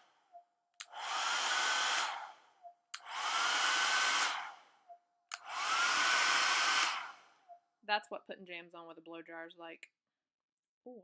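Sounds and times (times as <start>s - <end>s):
hair dryer motor whining: 0.8s - 4.7s, 5.3s - 7.4s
hair dryer switch click: 1.8s - 2.2s.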